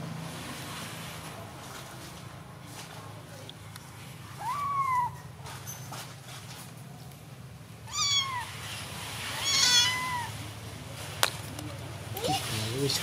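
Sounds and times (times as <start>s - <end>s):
kittens meowing: 4.4s - 5.2s, 7.8s - 8.6s, 9.2s - 10.4s.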